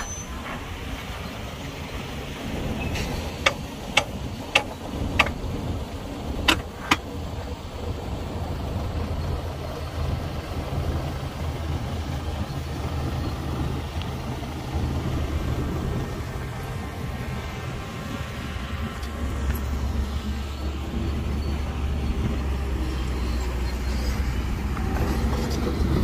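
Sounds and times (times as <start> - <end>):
diesel machinery engine drone: 0.0 - 26.0
sharp knocks: 3.4 - 5.4.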